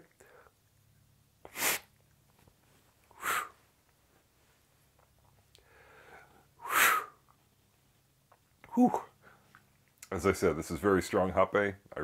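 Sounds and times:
heavy breaths through the nose: 0:03.1 - 0:03.7, 0:05.6 - 0:07.2.

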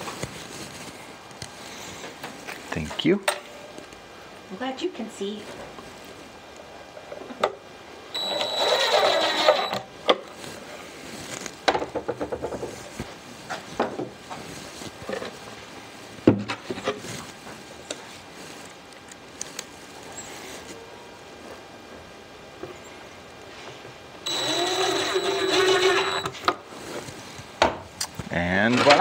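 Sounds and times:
cordless drill driving a screw: 0:08.2 - 0:09.8, 0:24.3 - 0:26.4.

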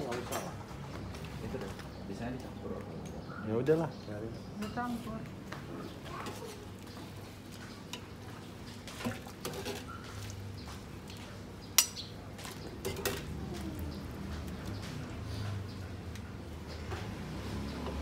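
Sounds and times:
metal ladle clinking on bowl: 0:11.8 - 0:12.0.

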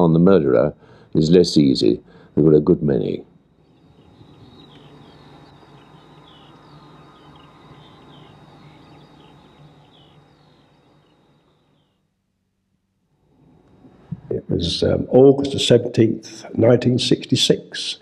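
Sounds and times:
low outdoor hum: 0:00.0 - 0:18.0
small birds chirping: 0:03.0 - 0:12.1.

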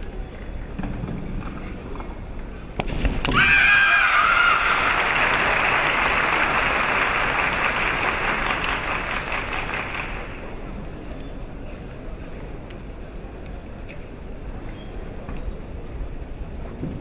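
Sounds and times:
long high-pitched shout: 0:03.4 - 0:04.9
crowd applause: 0:03.4 - 0:10.6.

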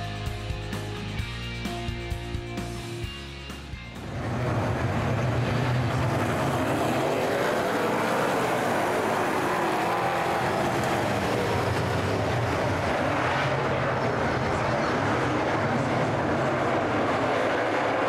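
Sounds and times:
race car engines revving past: 0:03.9 - 0:18.0.

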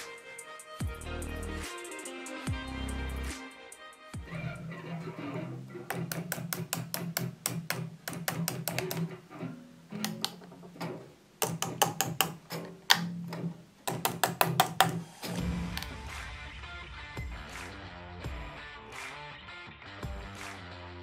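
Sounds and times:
guitar pickup tapping clicks: 0:05.8 - 0:15.0.

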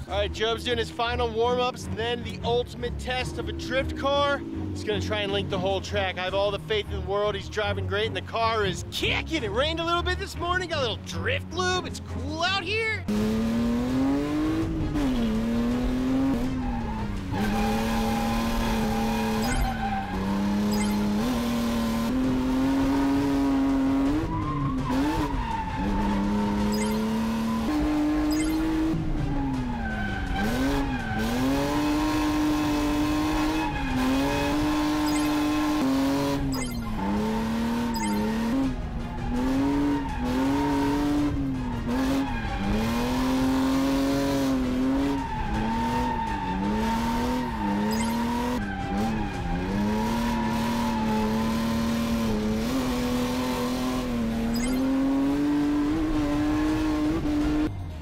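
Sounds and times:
car engine at high revs: 0:02.2 - 0:05.8, 0:13.1 - 0:57.8
tyre squeal: 0:16.4 - 0:21.3, 0:24.0 - 0:32.4, 0:33.2 - 0:35.8, 0:36.4 - 0:38.6, 0:44.9 - 0:51.4, 0:54.4 - 0:55.2.

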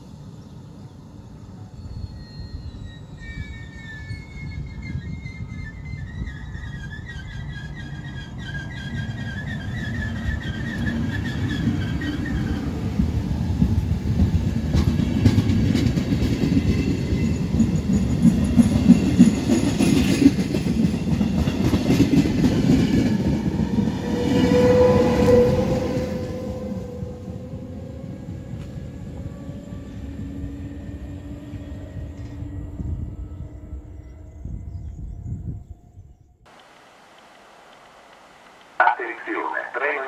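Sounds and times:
electric locomotive whine: 0:00.0 - 0:40.0
train wheel rumble: 0:04.4 - 0:35.3.

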